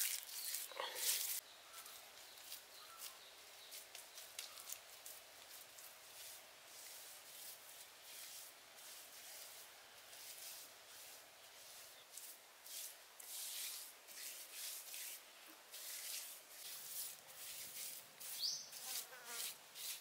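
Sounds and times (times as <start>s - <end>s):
hands rubbing wet clay: 15.8s - 20.0s.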